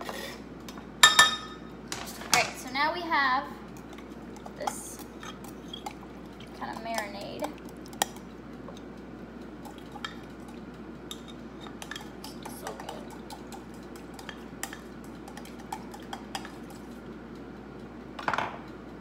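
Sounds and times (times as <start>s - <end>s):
utensil stirring liquid in glass: 3.8s - 8.2s, 9.6s - 17.0s.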